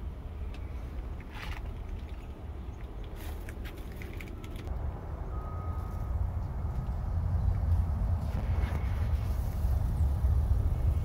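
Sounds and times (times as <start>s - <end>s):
low outdoor rumble: 0.0s - 11.0s.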